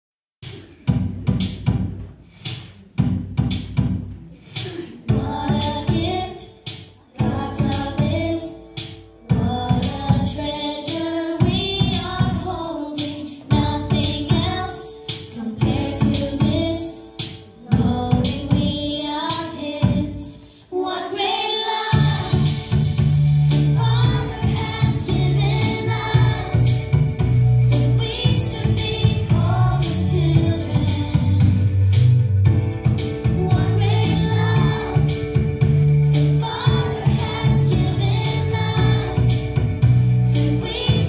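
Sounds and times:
drum beat: 0.4 - 8.2, 21.9 - 27.5
person singing: 4.6 - 22.7
deep bass line: 5.1 - 6.2, 7.2 - 8.4, 9.3 - 10.4, 21.9 - 41.0.

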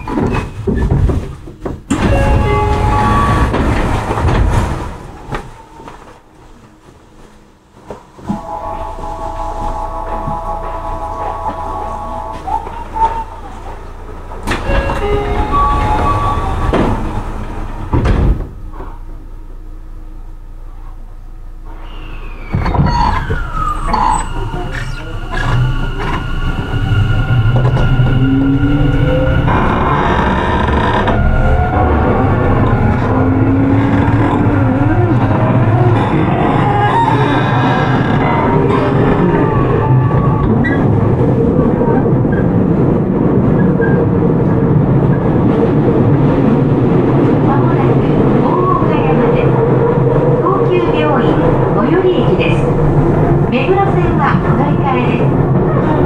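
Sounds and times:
wheels rumbling on track: 0.0 - 56.0
electric train inverter tones: 1.9 - 4.3, 8.2 - 18.0, 21.4 - 44.9.

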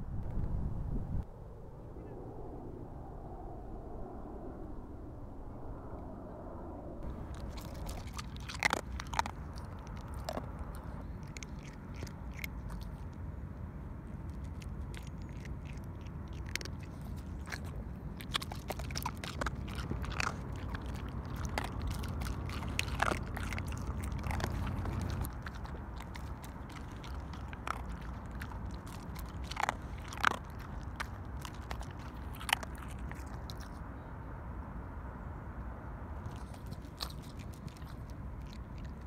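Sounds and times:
low rumble: 0.0 - 39.0
cat crunching dry kibble: 7.0 - 13.4, 14.0 - 33.8, 36.2 - 39.0.

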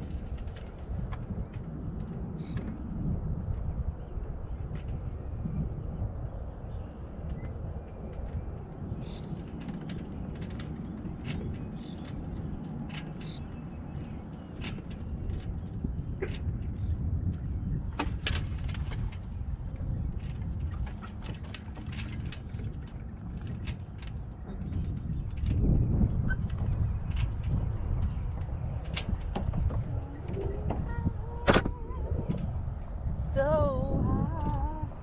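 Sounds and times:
wind rumbling on microphone: 0.0 - 35.0
water washing along hull: 8.0 - 32.4.

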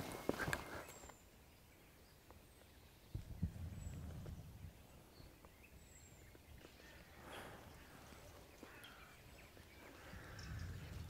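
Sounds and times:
soft rustle: 0.0 - 1.2.

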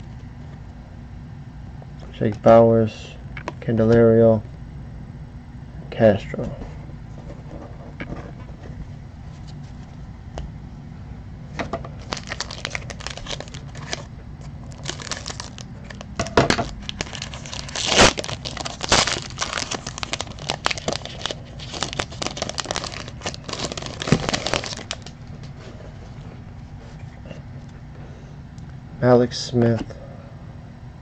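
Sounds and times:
foil wrapper crinkling and tearing: 12.0 - 25.2.

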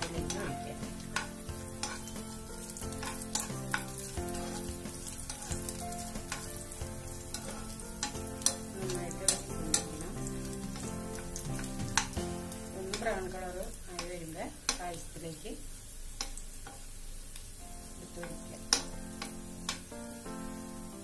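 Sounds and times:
steel spoon scraping a pan: 0.0 - 12.2
food sizzling in a pan: 0.0 - 21.0.

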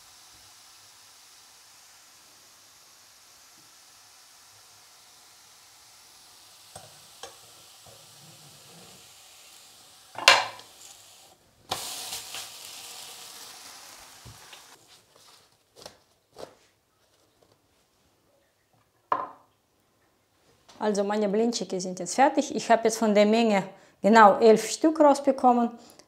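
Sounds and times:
pancake sizzling in a pan: 0.0 - 16.0.

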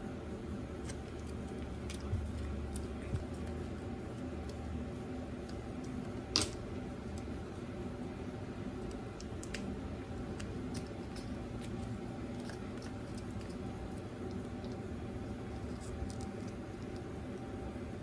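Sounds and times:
background hum: 0.0 - 18.0.

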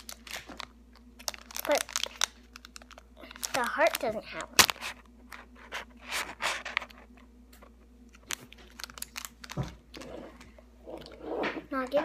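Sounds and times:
plastic ornament clicking and crinkling: 0.0 - 4.9, 8.1 - 9.7.

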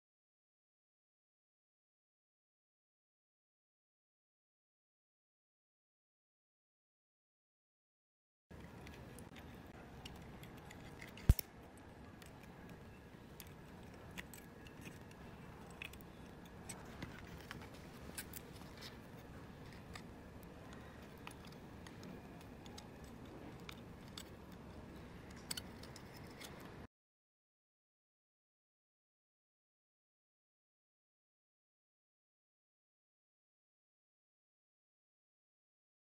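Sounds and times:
plastic parts clicking and tapping: 8.5 - 26.8.

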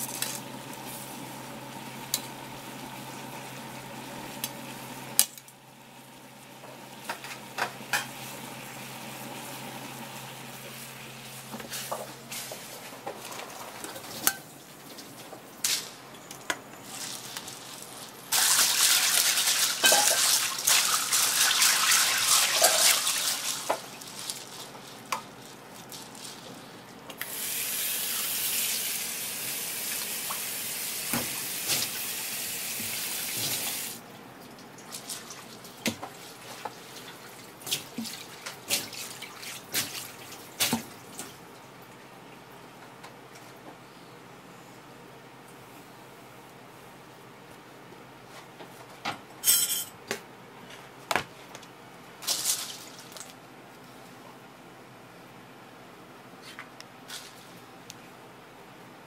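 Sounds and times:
metal pans clinking: 19.7 - 20.4, 49.4 - 50.0.

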